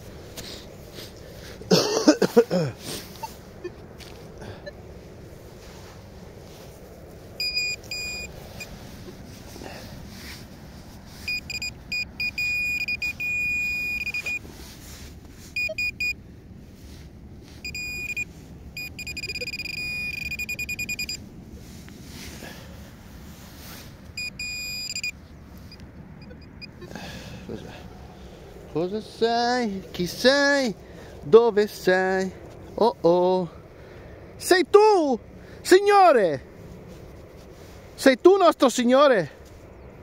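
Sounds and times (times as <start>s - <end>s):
metal detector beeping: 7.4s - 8.7s, 11.2s - 14.4s, 15.5s - 16.2s, 17.6s - 21.2s, 24.2s - 26.9s.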